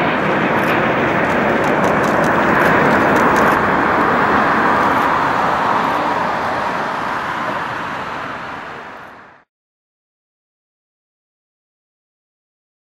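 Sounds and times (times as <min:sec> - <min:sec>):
jet engines roaring: 0:00.0 - 0:09.5.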